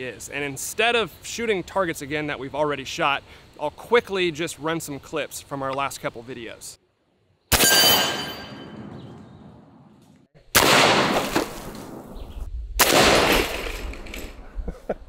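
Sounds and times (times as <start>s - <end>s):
air rifle shots: 10.5s - 12.2s, 12.8s - 14.2s.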